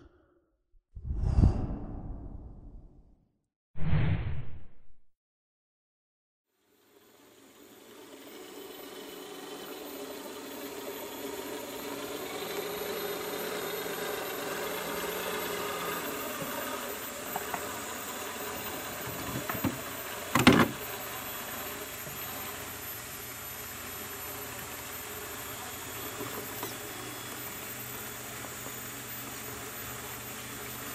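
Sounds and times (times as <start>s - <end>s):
toy car motor whining: 6.7s - 30.9s.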